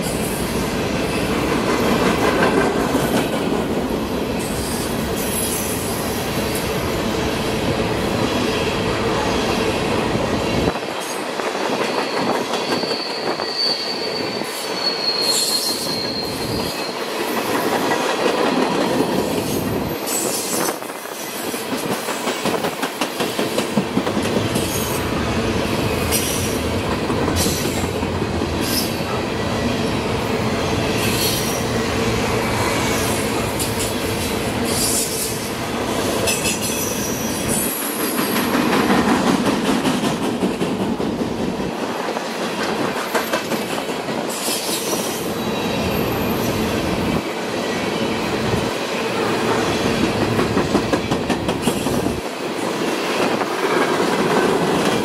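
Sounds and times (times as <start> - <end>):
train wheels clattering on rails: 0.0 - 6.8, 10.5 - 25.2, 25.8 - 29.2, 33.0 - 47.3, 48.4 - 55.0
wheel flange squeals: 12.0 - 17.1.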